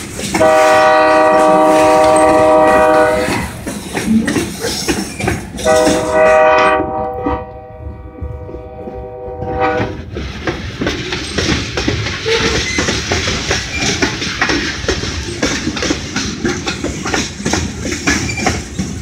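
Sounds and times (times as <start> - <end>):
freight cars rumbling and clattering: 0.0 - 19.0
diesel locomotive horn: 0.3 - 3.6, 5.6 - 10.1.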